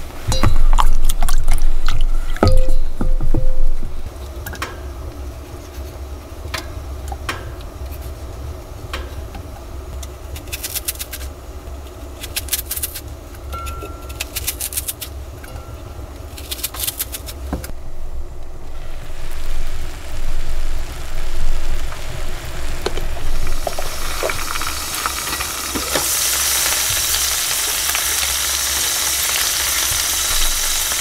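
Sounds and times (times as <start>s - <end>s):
low rumble: 0.0s - 4.1s
crunching onion slices: 10.0s - 15.2s, 16.2s - 17.5s.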